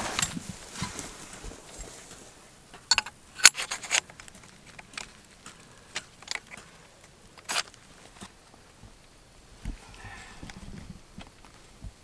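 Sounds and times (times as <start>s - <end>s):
metal clicks and clinks: 2.7s - 8.3s.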